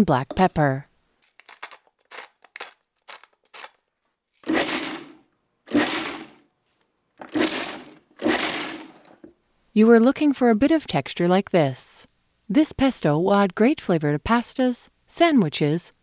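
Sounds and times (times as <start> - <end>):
pepper mill crunching: 1.2 - 6.4, 7.2 - 9.2
food processor chopping: 4.4 - 6.4, 7.2 - 9.3.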